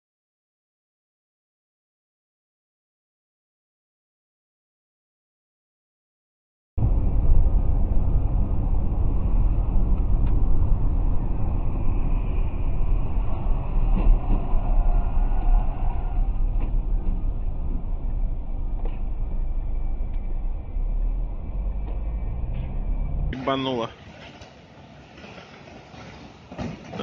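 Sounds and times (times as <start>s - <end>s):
tyres and engine rumble in car: 6.8s - 23.4s.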